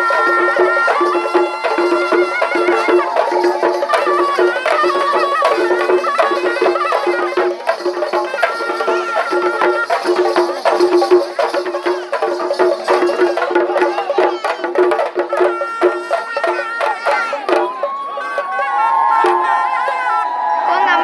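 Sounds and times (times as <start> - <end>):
wavering melody line: 0.0 - 7.7
drums beating fast rhythm: 0.0 - 20.2.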